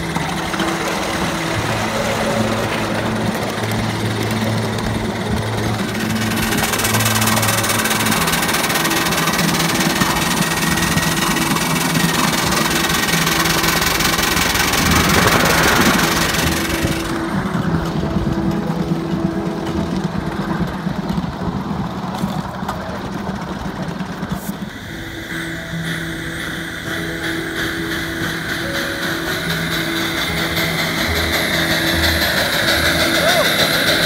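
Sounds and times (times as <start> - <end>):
steam hiss: 0.0 - 19.1, 23.3 - 34.0
miniature steam train running: 0.0 - 34.0.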